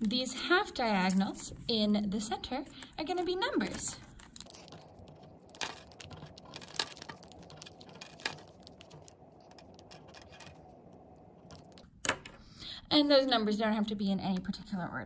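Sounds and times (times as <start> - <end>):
pens clicking and tapping on desk: 4.4 - 10.7.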